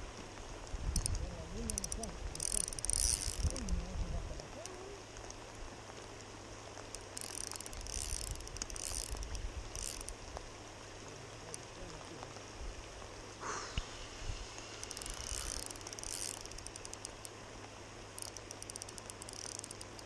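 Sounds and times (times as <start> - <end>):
wind rumble on microphone: 0.0 - 5.2
fishing reel drag clicking: 0.9 - 3.8, 6.9 - 10.2, 14.8 - 17.4, 18.2 - 20.0.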